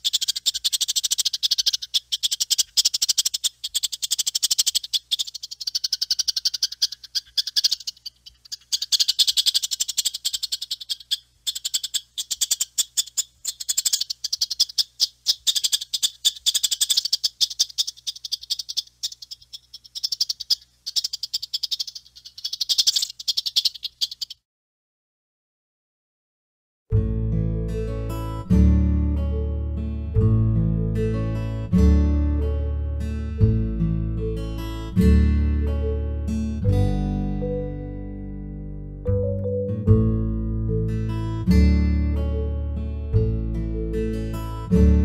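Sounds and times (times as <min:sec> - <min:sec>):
squirrel chattering: 0:00.0 - 0:24.4.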